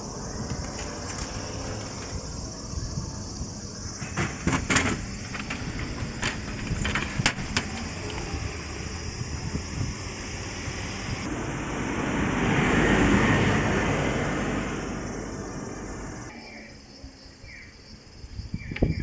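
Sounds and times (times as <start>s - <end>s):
machine hum: 0.0s - 16.4s.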